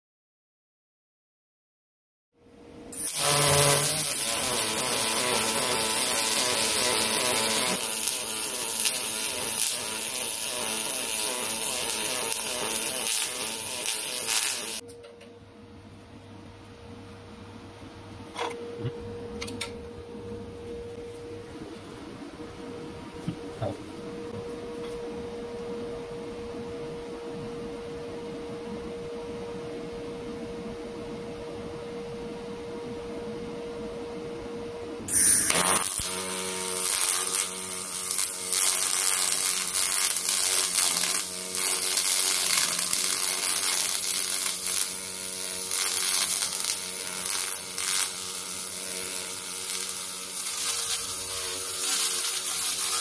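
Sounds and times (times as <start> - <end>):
steady hum: 2.4 - 52.9
welding arc crackling buzz: 2.9 - 14.8, 35.1 - 53.0.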